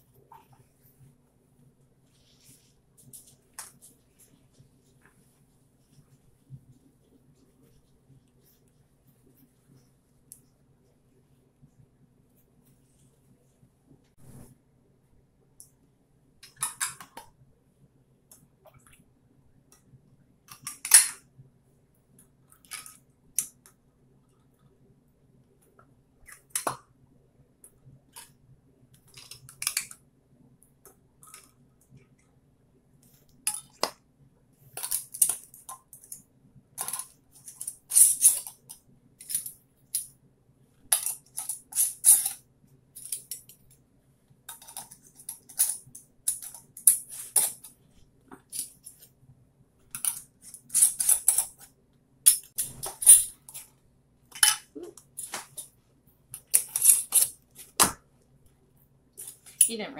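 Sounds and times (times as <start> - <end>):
metal lids clinking on glass jars: 54.3 - 54.8.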